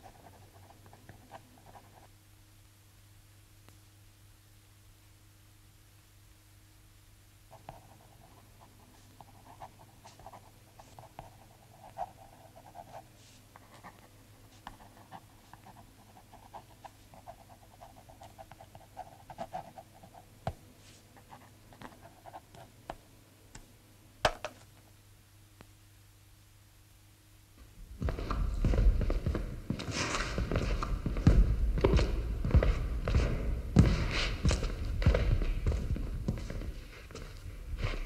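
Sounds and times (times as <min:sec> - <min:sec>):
faint scratching and crackling: 0:07.5 - 0:23.0.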